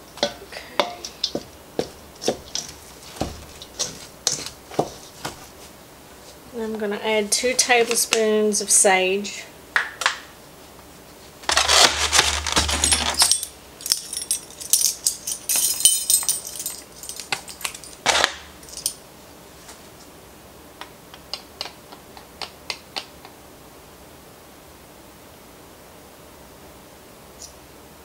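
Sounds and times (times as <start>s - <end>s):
spice containers and utensils clattering: 0.2s - 5.5s, 11.5s - 19.0s
loud rustling clatter: 11.4s - 18.9s.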